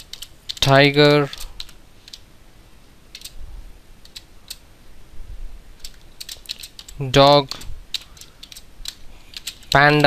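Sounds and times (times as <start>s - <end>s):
keyboard key clicks: 5.8s - 7.0s, 7.9s - 10.0s.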